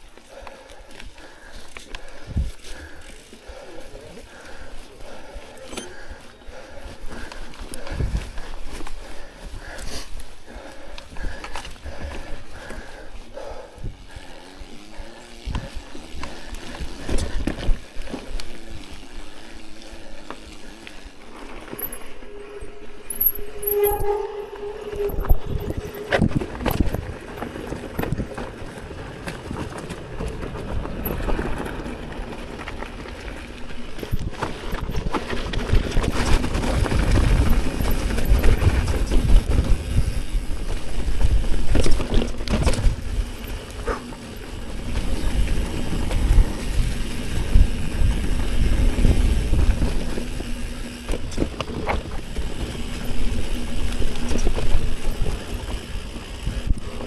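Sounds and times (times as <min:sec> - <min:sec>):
bike tyres on dirt and leaves: 0:00.0 - 0:57.0
bike clattering over rocks: 0:25.0 - 0:40.0, 0:41.0 - 0:44.4.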